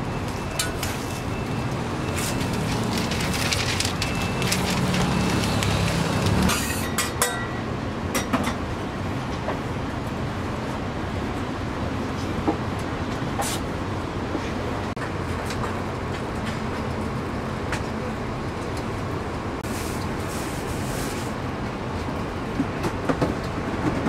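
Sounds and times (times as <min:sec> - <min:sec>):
busy street background noise: 0:00.0 - 0:24.0
griddle sizzling: 0:00.2 - 0:06.9
sharp clicks and crackles: 0:01.7 - 0:06.5
paper wrapper crinkling: 0:02.1 - 0:06.5.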